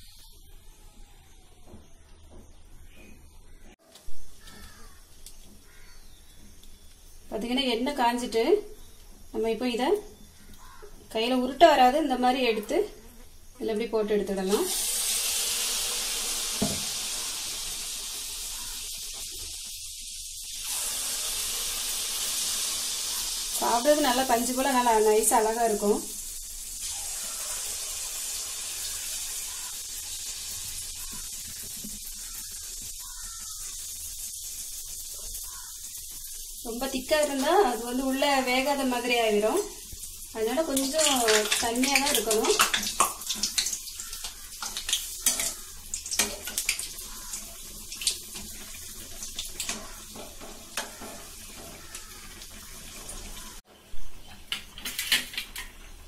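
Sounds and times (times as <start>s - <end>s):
batter sizzling in oil: 4.4s - 12.3s, 14.3s - 53.7s
metal spoon scraping pan: 45.2s - 45.6s.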